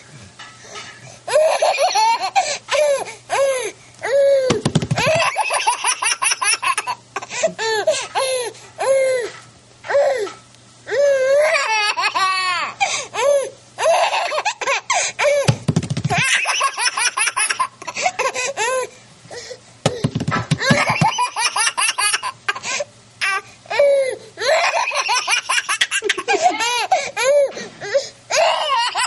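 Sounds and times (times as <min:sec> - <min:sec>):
toddler laughing: 0:01.3 - 0:03.4, 0:04.1 - 0:08.0, 0:11.2 - 0:15.5, 0:16.1 - 0:18.9, 0:20.6 - 0:27.6, 0:28.3 - 0:29.0.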